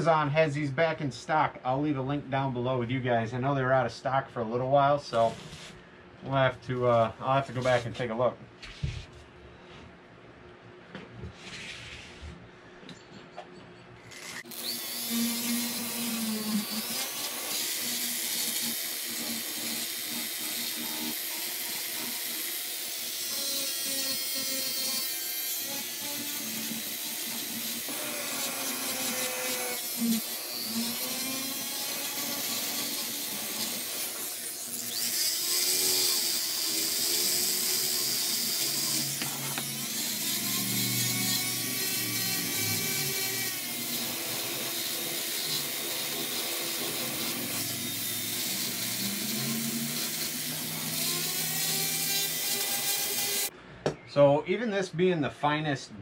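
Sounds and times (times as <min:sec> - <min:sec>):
rotary tool grinding wood: 0:14.1 - 0:53.5.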